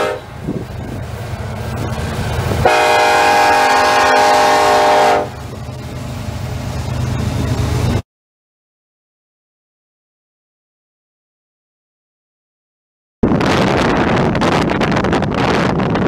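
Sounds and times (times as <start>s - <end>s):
locomotive air horn blast: 0.0s - 0.5s, 2.6s - 5.5s
train passing rumble: 0.0s - 8.0s, 13.3s - 16.0s.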